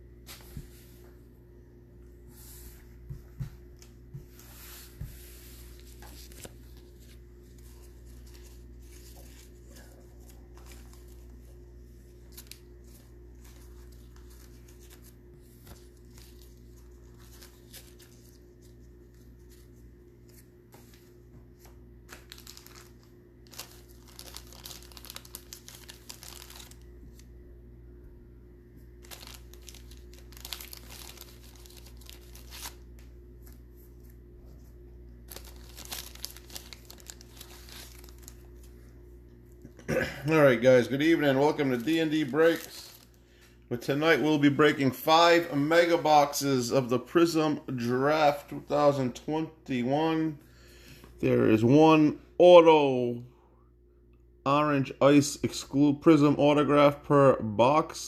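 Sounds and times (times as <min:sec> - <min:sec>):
low hum: 0:00.0 - 0:49.2
crinkling and rustling: 0:12.2 - 0:27.2, 0:29.0 - 0:34.7, 0:35.3 - 0:38.8.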